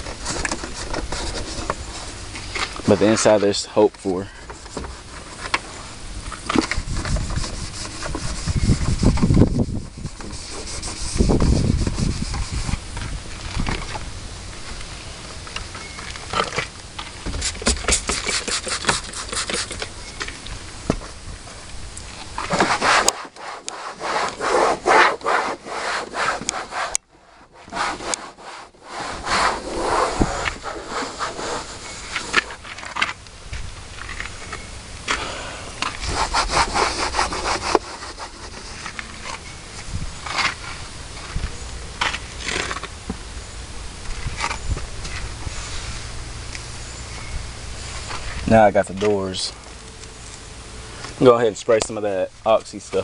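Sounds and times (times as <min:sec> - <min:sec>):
hand scrubbing trim: 0:07.0 - 0:12.8, 0:17.3 - 0:19.9, 0:22.4 - 0:32.8, 0:35.2 - 0:39.1.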